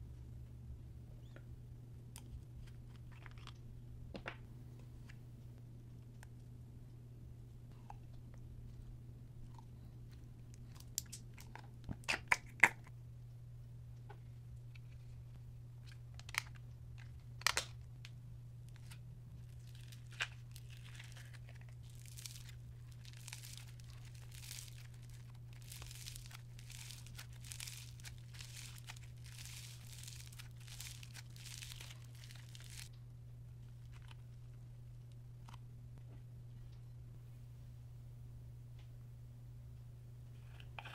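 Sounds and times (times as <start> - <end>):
low hum: 12.9 - 40.9
slime crackling and crunching: 18.8 - 32.9.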